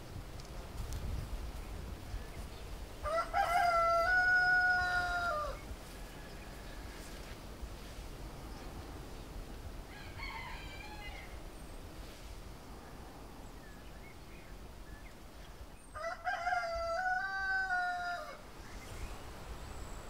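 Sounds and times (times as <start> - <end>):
rooster crowing: 3.0 - 7.1, 9.9 - 11.4, 16.0 - 18.4.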